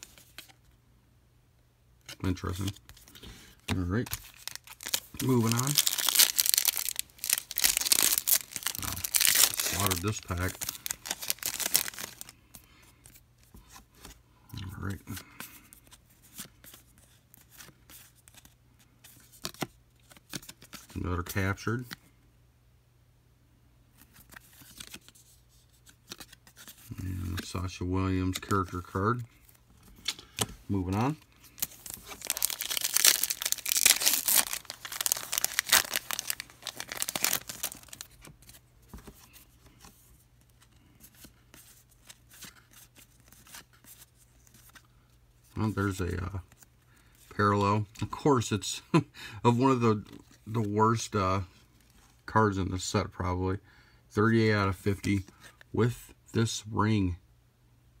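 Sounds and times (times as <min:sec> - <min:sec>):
cards rustling and clicking: 0:02.0 - 0:22.0, 0:23.9 - 0:45.0
foil wrapper tearing and crinkling: 0:04.0 - 0:12.3, 0:31.5 - 0:38.2.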